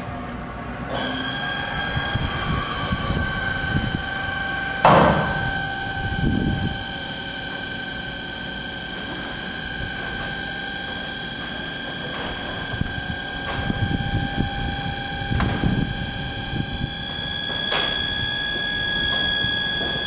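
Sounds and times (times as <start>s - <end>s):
machine hum with whine: 0.0s - 20.0s.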